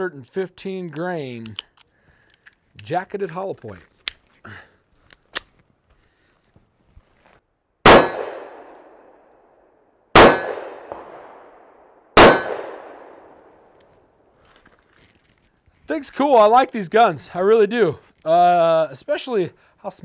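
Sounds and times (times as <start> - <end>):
pistol shots: 7.8 - 9.2, 10.1 - 13.6.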